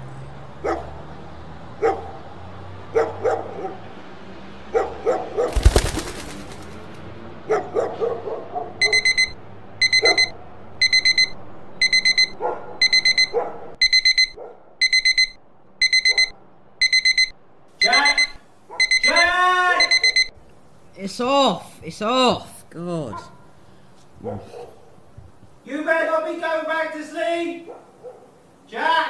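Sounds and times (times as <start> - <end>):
dog barking: 0.6 - 1.0, 1.8 - 2.2, 2.9 - 3.9, 4.7 - 5.6, 7.5 - 9.0, 10.0 - 10.3, 12.4 - 13.8, 14.4 - 14.7, 23.1 - 23.5, 24.2 - 25.0, 27.6 - 28.4
phone alarm beeping: 8.8 - 20.4.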